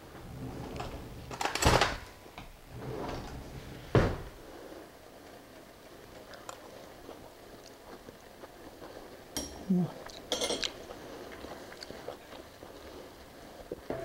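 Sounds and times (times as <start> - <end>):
drawer sliding open with rattle: 0.1 - 2.1, 2.7 - 4.4
drawer knocked shut: 3.9 - 4.4.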